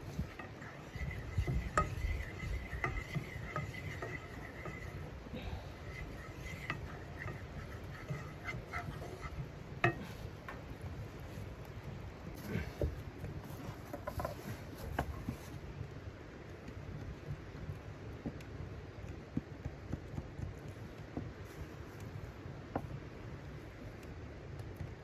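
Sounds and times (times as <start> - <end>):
spatula tapping on pan: 0.0 - 5.0, 5.9 - 10.1
spatula scraping frying pan: 0.0 - 10.3.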